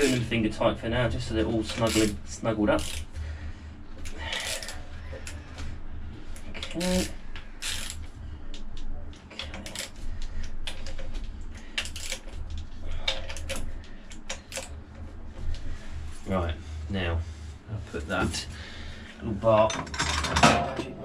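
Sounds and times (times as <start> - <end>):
low steady hum: 0.0 - 21.0
socket ratchet clicking: 2.8 - 3.1, 7.6 - 8.0.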